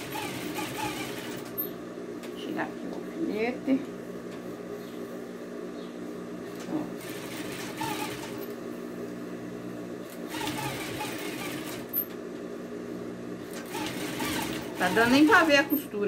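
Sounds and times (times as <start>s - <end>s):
sewing machine running: 0.0s - 1.8s, 7.0s - 8.6s, 10.1s - 12.1s, 13.4s - 16.0s.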